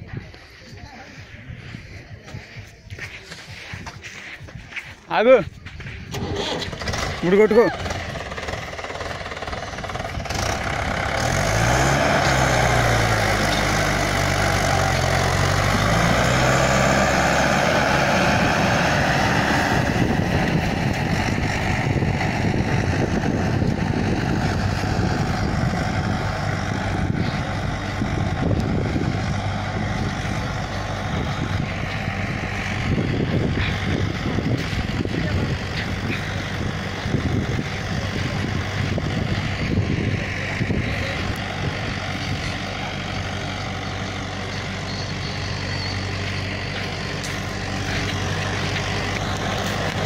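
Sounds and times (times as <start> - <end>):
tractor diesel engine under load: 0.0 - 50.0.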